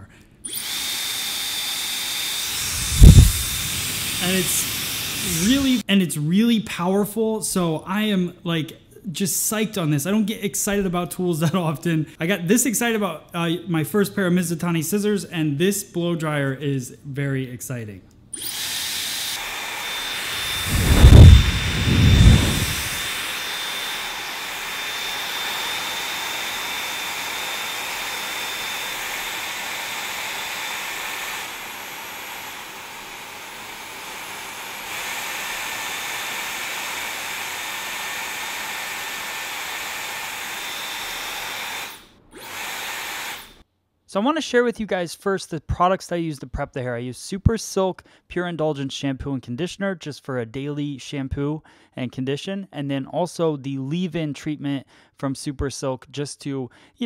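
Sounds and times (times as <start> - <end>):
hair dryer running: 0.5 - 5.8, 18.4 - 43.6
air gusts hitting microphone: 2.5 - 5.8, 20.4 - 23.1.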